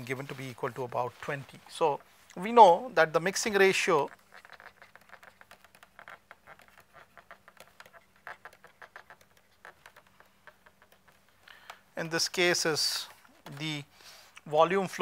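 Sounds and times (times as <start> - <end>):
stylus tapping on tablet screen: 4.1 - 12.0.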